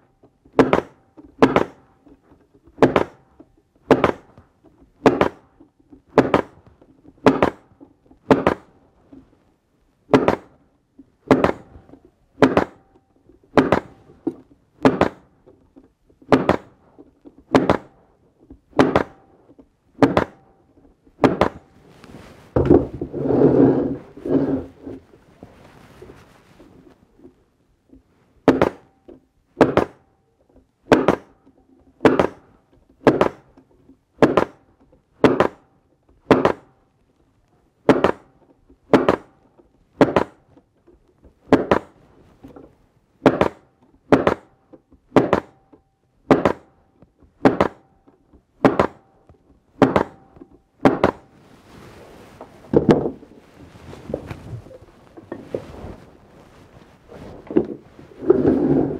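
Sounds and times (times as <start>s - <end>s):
soft knocks and handling noise: 0.1s - 47.3s, 48.0s - 58.9s
staple gun firing into wood: 0.5s - 1.9s, 2.8s - 3.3s, 3.9s - 4.4s, 5.0s - 5.5s, 6.1s - 6.6s, 7.2s - 8.7s, 10.1s - 10.6s, 11.2s - 11.7s, 12.4s - 15.3s, 16.2s - 16.8s, 17.5s - 18.0s, 18.7s - 19.3s, 20.0s - 20.5s, 29.6s - 30.1s, 30.9s - 31.4s, 32.0s - 33.5s, 34.2s - 36.8s, 37.9s - 39.4s, 40.0s - 40.4s, 43.2s - 46.8s, 47.4s - 48.0s, 48.6s - 49.2s, 49.8s - 51.2s.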